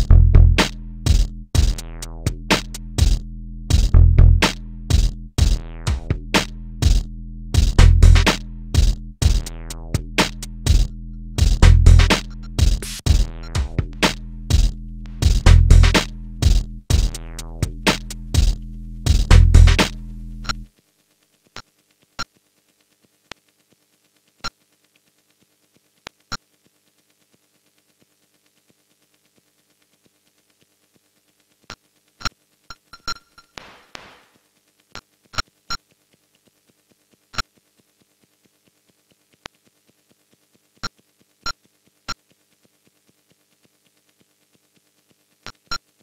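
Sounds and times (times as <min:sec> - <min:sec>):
electronic music with drum beat: 0:00.0 - 0:20.6
faint held low tones: 0:00.0 - 0:20.7
faint steady hum: 0:00.0 - 0:33.6.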